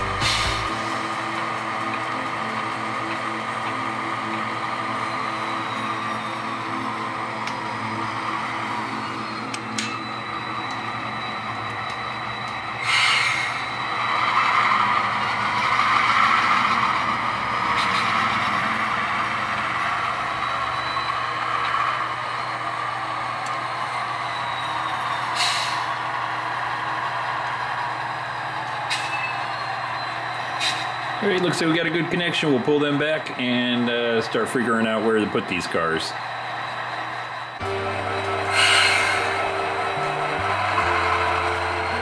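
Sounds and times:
air-brake hisses: 0.0 - 1.0, 12.8 - 13.8, 25.3 - 26.0, 30.6 - 31.0, 38.5 - 39.4
model diesel engine sounds: 0.0 - 42.0.

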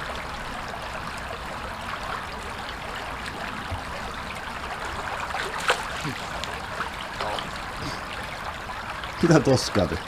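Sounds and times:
brook babbling over stones: 0.0 - 10.0.

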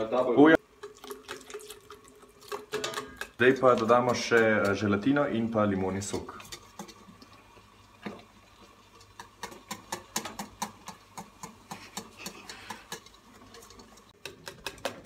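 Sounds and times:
whisk clicking against steel pot: 9.0 - 15.0.

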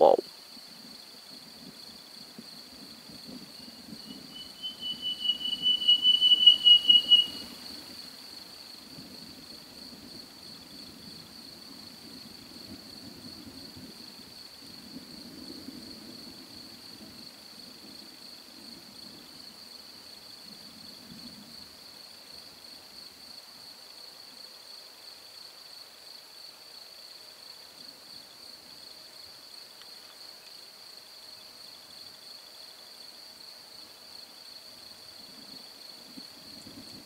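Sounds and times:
high insect-like trill: 3.3 - 7.8
animal pulsed whistle call: 3.6 - 7.7.

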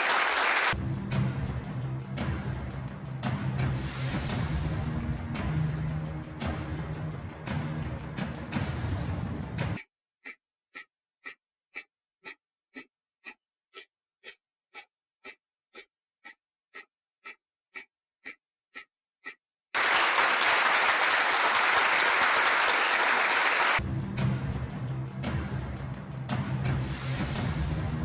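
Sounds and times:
loud applause: 0.0 - 0.8, 19.8 - 23.8
clock ticking: 4.3 - 19.5.

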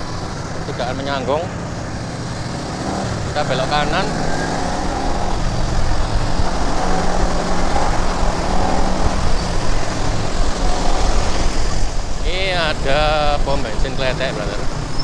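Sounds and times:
motorcycle engine running: 0.0 - 15.0
wind on the microphone: 3.0 - 15.0.

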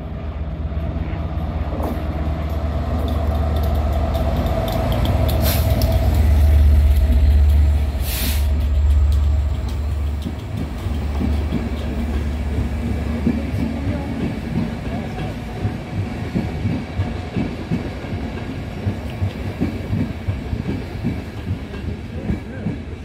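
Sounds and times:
diesel locomotive rumbling past: 0.0 - 23.0
train wheels rattling over track: 0.0 - 23.0
short hiss: 5.4 - 5.9, 8.0 - 8.6.

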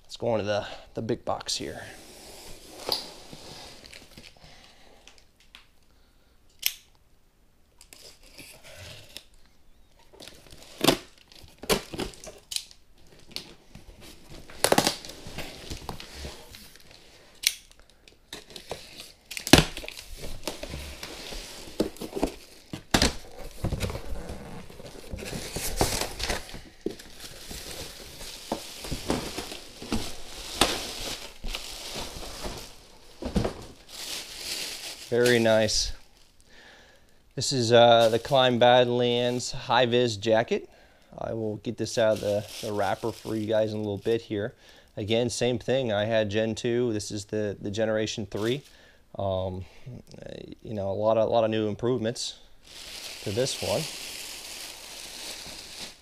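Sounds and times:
plastic bag crinkling: 14.1 - 36.5, 37.9 - 38.8, 41.9 - 44.3, 52.6 - 56.0
cardboard and tape tearing: 14.4 - 16.8, 18.5 - 35.5.

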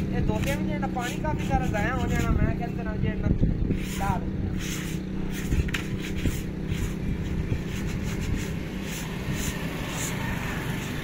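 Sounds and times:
low mechanical hum: 0.0 - 11.0
plastic bottle scraping concrete: 0.3 - 2.5, 3.7 - 10.2.

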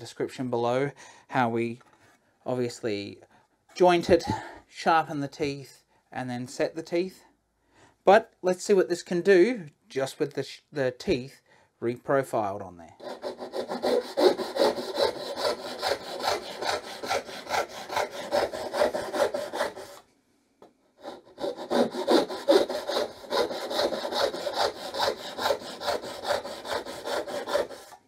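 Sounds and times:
hand saw cutting wood: 13.0 - 20.0, 21.0 - 28.0.

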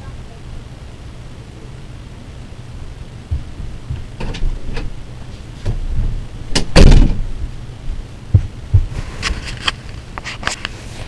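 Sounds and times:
footsteps: 3.2 - 10.8
bedroom door: 3.3 - 9.4
heavy thump: 5.6 - 9.0.

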